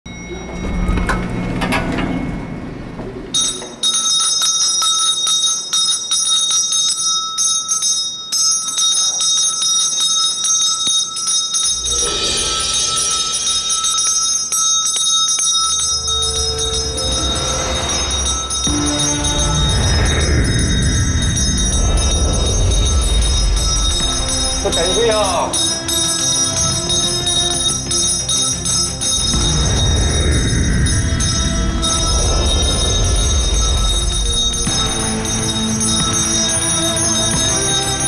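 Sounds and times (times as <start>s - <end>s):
bell-like tremolo music: 0.1s - 38.0s
low rumble: 16.1s - 28.0s, 28.7s - 37.5s.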